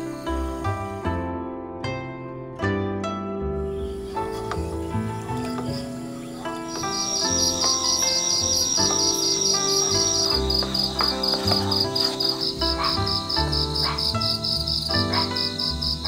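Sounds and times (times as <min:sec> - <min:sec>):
soft instrumental music: 0:00.0 - 0:16.0
cricket trilling and chirping: 0:03.7 - 0:16.0.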